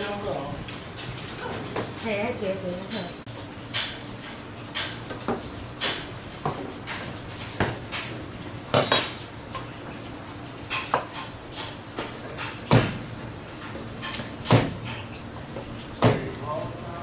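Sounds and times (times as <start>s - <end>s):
knife chopping on cutting board: 12.7s - 13.0s, 14.5s - 14.8s, 16.0s - 16.2s.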